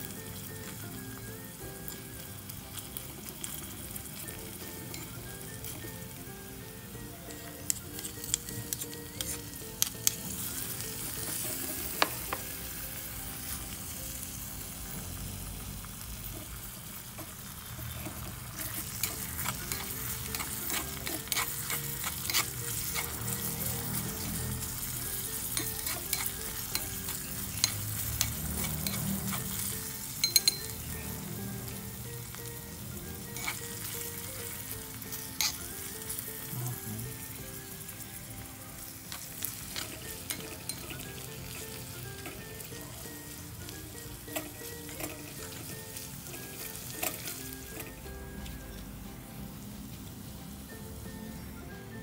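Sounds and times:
onion and garlic sizzling: 0:00.0 - 0:52.0
metal spatula scraping pan: 0:17.9 - 0:24.7, 0:25.4 - 0:29.7, 0:33.3 - 0:34.0, 0:44.3 - 0:47.9.

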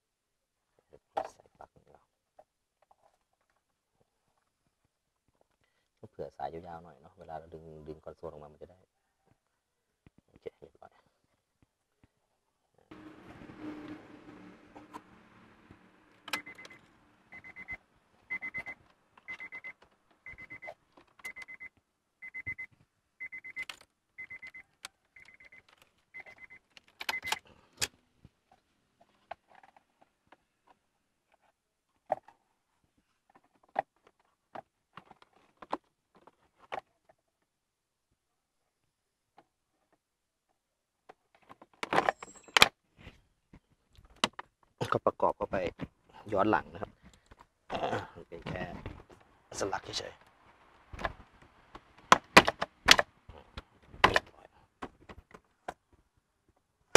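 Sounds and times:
car warning chime beeping: 0:16.3 - 0:27.4.

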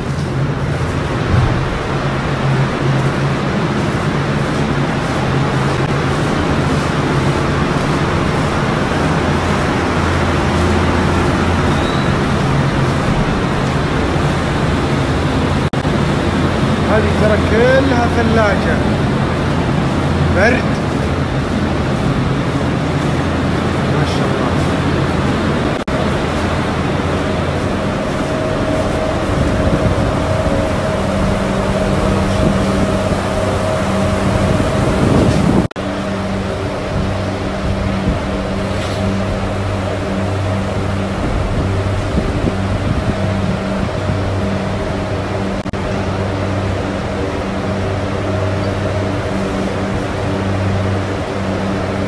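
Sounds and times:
evaporator fans rushing: 0:00.0 - 0:52.0
low hum: 0:00.0 - 0:52.0.

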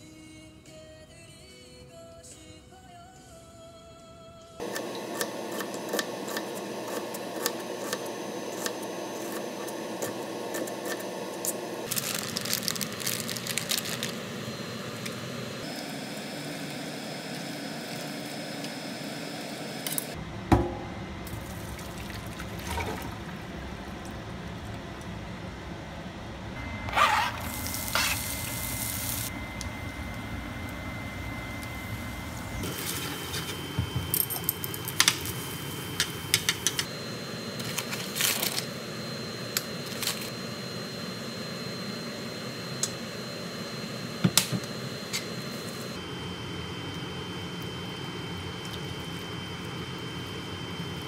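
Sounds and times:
stovetop frying hiss: 0:04.6 - 0:19.8, 0:27.2 - 0:36.9
faint high whine: 0:04.6 - 0:51.0.

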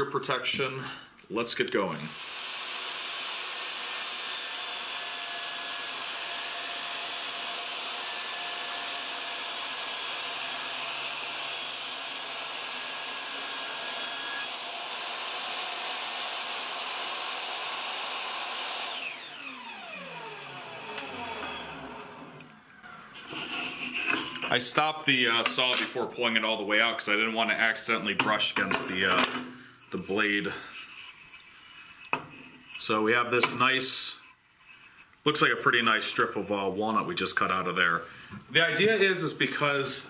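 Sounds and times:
saw blade spinning down: 0:02.1 - 0:22.6
table saw ripping wood: 0:02.1 - 0:24.6.

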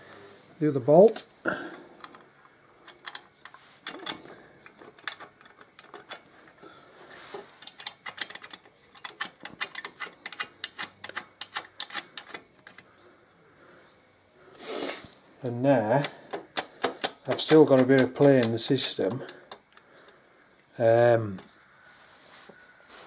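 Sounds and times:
ratchet wrench clicking: 0:07.6 - 0:12.4.

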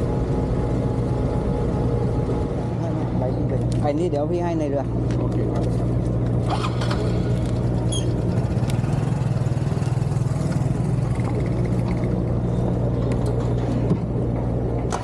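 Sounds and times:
motorcycle engine running: 0:04.9 - 0:15.0.

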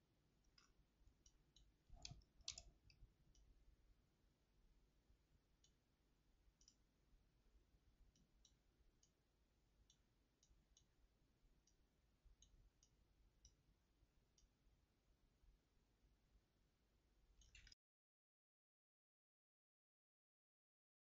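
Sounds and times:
faint computer mouse clicks: 0:00.5 - 0:03.5, 0:06.6 - 0:06.8, 0:17.4 - 0:17.8.

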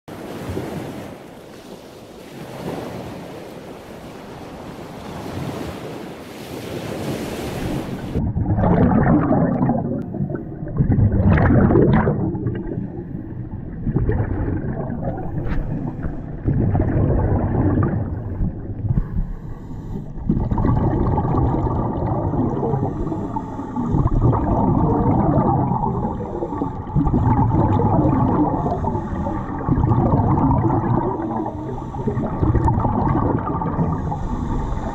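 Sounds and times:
underwater regulator bubbles rushing: 0:07.6 - 0:34.9.

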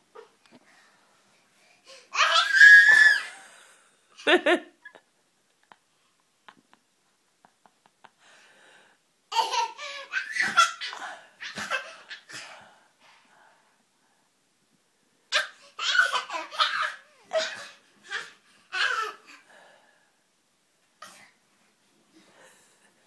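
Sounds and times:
toddler laughing: 0:09.3 - 0:12.3, 0:15.3 - 0:19.2.

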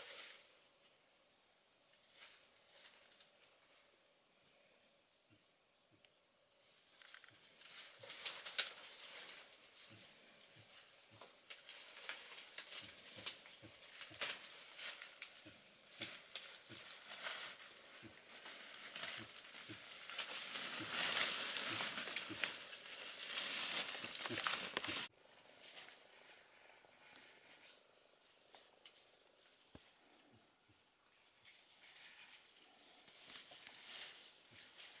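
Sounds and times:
dry leaves rustling and crackling: 0:01.9 - 0:03.9, 0:06.6 - 0:30.2, 0:31.1 - 0:35.0
twigs snapping: 0:06.9 - 0:25.1.

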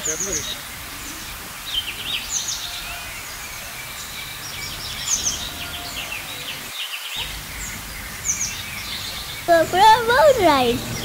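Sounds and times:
songbirds chirping and singing: 0:00.0 - 0:11.0
low background rumble: 0:07.2 - 0:11.0.

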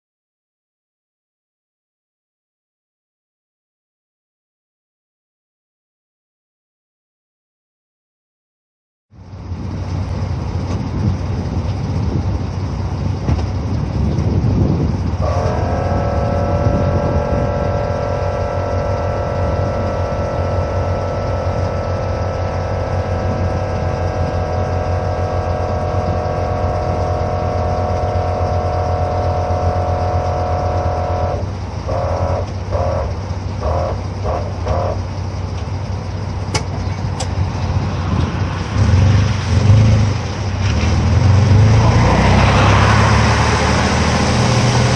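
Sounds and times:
engine and exhaust drone: 0:09.1 - 0:44.9
road noise: 0:09.1 - 0:44.9
multi-tone whine: 0:15.2 - 0:38.5.

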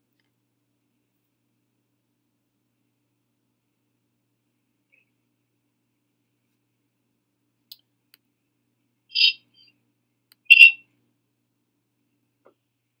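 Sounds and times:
short high-pitched chirps: 0:09.1 - 0:09.7, 0:10.5 - 0:10.8.

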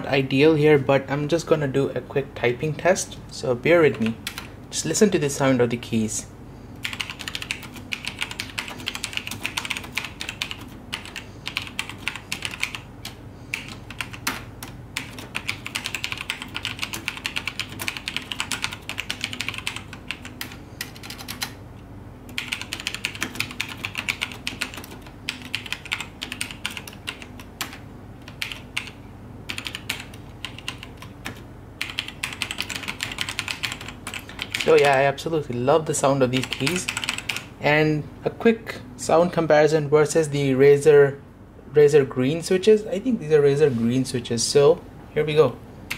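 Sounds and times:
fast typing on mechanical keyboard: 0:06.8 - 0:21.6, 0:22.3 - 0:35.0, 0:36.3 - 0:37.5.

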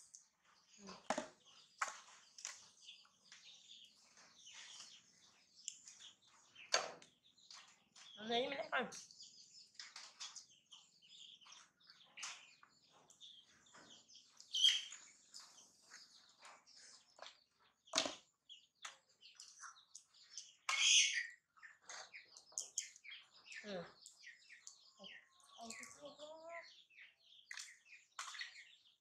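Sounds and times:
baby monkeys squeaking and chirping: 0:14.4 - 0:15.2, 0:19.4 - 0:28.8.

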